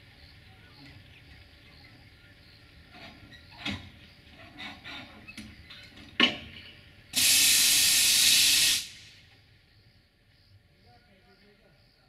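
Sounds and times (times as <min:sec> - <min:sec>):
compressed air hissing: 0:07.2 - 0:09.3.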